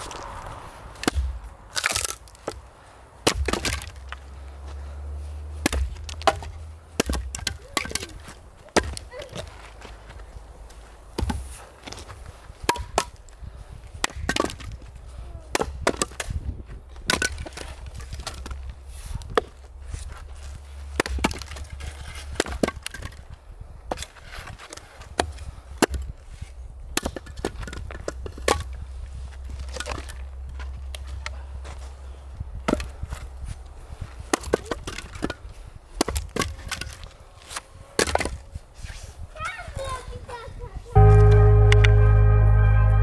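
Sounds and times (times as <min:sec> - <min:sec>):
axe chopping firewood: 0:01.0 - 0:02.6, 0:03.2 - 0:04.2, 0:05.6 - 0:09.4, 0:12.6 - 0:13.2, 0:14.0 - 0:14.8, 0:15.5 - 0:16.4, 0:17.0 - 0:18.6, 0:20.9 - 0:23.2, 0:24.7 - 0:26.1, 0:26.9 - 0:28.8, 0:32.7 - 0:33.2, 0:34.2 - 0:37.1.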